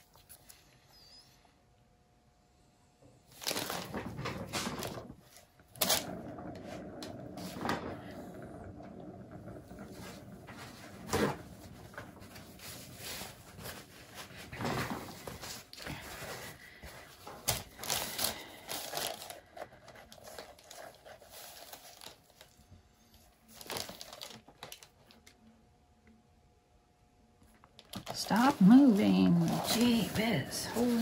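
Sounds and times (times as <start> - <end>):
canvas crinkling and rustling: 3.3 - 6.2, 10.2 - 22.5, 23.4 - 25.3, 27.8 - 31.0.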